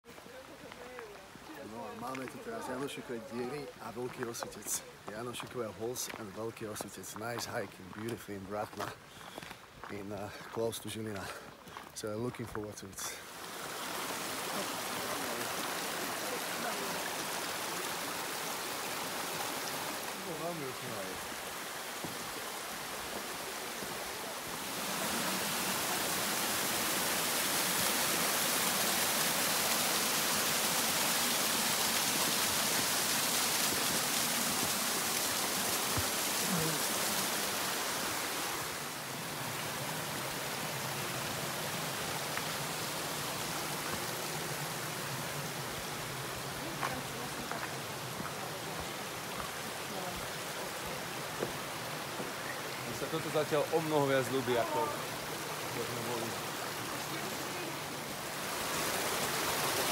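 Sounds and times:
mountain stream rushing: 0:00.0 - 0:59.9.

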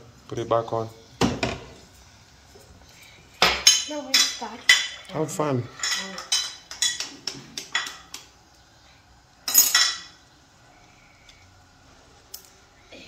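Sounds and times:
metal utensils tapping: 0:03.4 - 0:05.1, 0:05.8 - 0:08.3, 0:09.5 - 0:10.1
metal kitchenware clatter: 0:05.7 - 0:08.2, 0:09.4 - 0:10.2.

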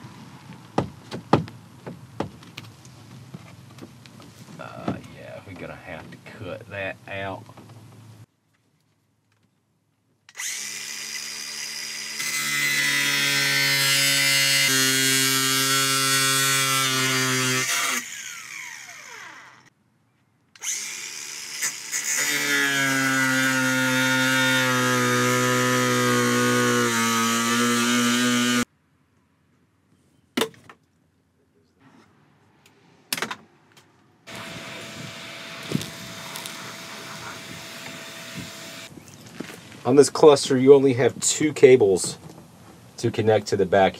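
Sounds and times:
sharp knocks: 0:00.8 - 0:02.4
angle grinder cutting: 0:10.3 - 0:19.7, 0:20.6 - 0:28.7, 0:34.3 - 0:38.9.

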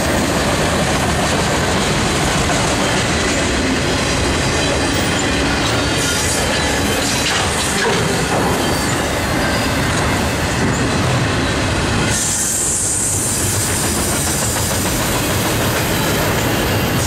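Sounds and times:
train wheels rumbling on rails: 0:00.0 - 0:17.0.

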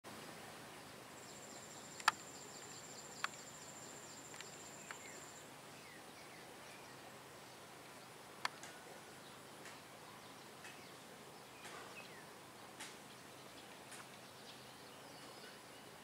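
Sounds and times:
sharp clicks: 0:02.0 - 0:02.2.

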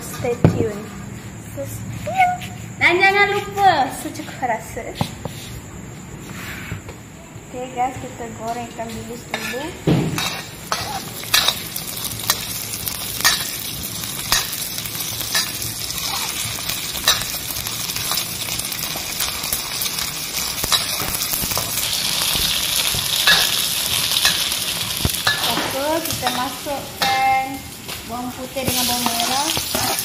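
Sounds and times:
metal spatula scraping a wok: 0:09.3 - 0:18.2, 0:20.4 - 0:27.3, 0:28.7 - 0:30.0
fish sizzling in hot oil: 0:10.2 - 0:30.0.

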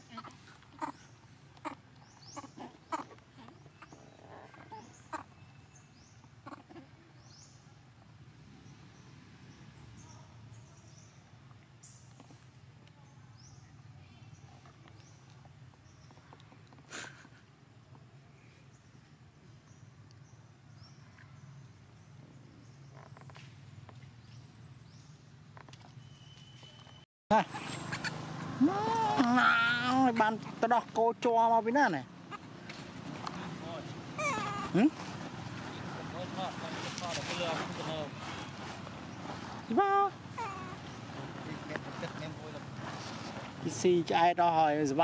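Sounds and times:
monkeys squeaking: 0:00.1 - 0:05.4, 0:06.4 - 0:06.9, 0:27.4 - 0:29.9, 0:34.0 - 0:35.1, 0:40.3 - 0:41.1.

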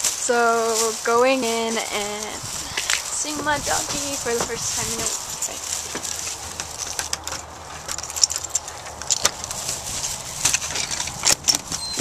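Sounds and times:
keys jingling: 0:06.6 - 0:09.6.

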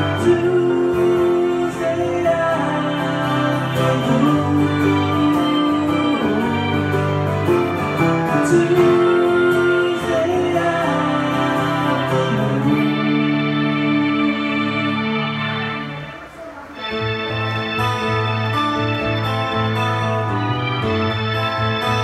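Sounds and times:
man singing: 0:00.0 - 0:16.0
live soft rock band: 0:00.0 - 0:22.0.

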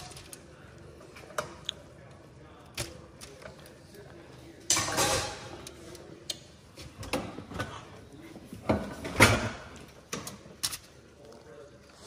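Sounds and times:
pots and pans clattering: 0:04.7 - 0:05.5.

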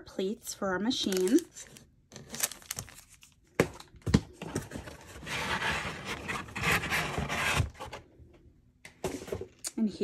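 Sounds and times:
paper insert scraping cardboard box: 0:05.0 - 0:08.0.

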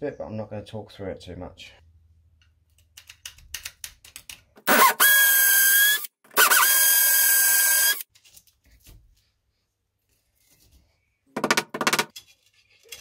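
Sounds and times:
power drill drilling into brick: 0:04.6 - 0:08.0.

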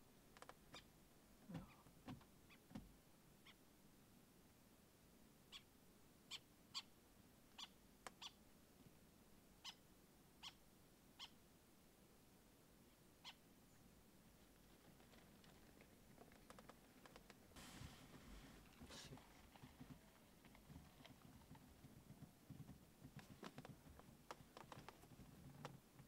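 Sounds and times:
background hiss: 0:00.0 - 0:26.0
short high animal calls: 0:05.5 - 0:05.7, 0:10.4 - 0:10.6, 0:11.2 - 0:11.4.

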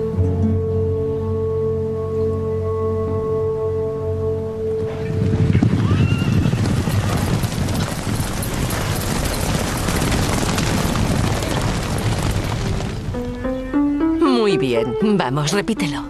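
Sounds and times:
horses galloping hoofbeats: 0:04.8 - 0:13.4
horse whinnying: 0:05.6 - 0:07.5.

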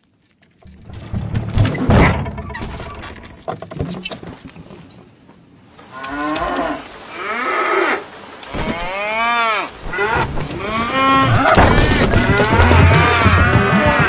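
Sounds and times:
cows mooing: 0:08.6 - 0:14.0.

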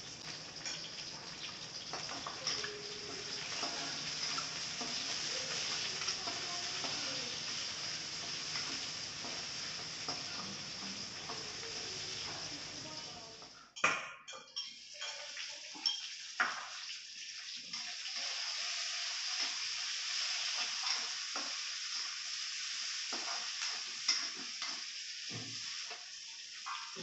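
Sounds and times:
vegetables sizzling in a wok: 0:00.0 - 0:13.8, 0:14.6 - 0:27.0
spatula scraping and knocking wok: 0:01.8 - 0:12.6.

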